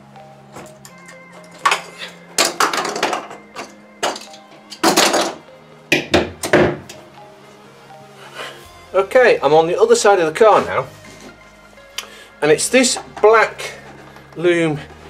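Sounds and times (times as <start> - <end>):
background music low notes: 0.0 - 15.0
knocks and clattering handling: 0.5 - 7.0, 12.8 - 15.0.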